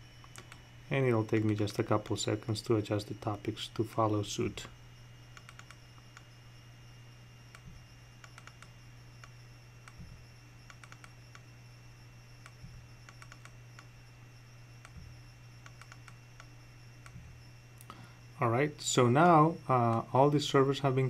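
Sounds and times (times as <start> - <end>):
low hum: 0.0 - 21.0
mouse clicks: 5.4 - 6.3, 7.5 - 11.5, 12.4 - 13.9, 14.8 - 17.3.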